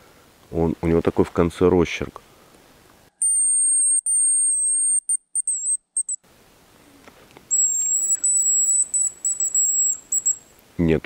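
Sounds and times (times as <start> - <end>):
high decoy whistle: 3.2 - 6.2, 7.5 - 10.5.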